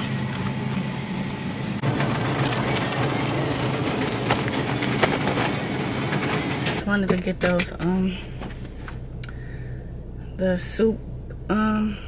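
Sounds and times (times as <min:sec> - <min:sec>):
freezer hum: 0:00.0 - 0:12.0
cardboard boxes crackling: 0:01.8 - 0:06.8.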